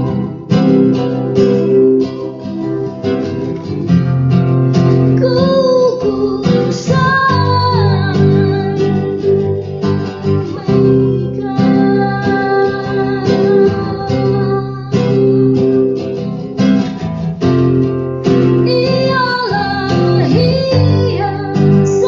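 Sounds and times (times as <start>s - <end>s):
wavering melody line: 0.0s - 16.6s
acoustic guitar strumming: 0.0s - 22.0s.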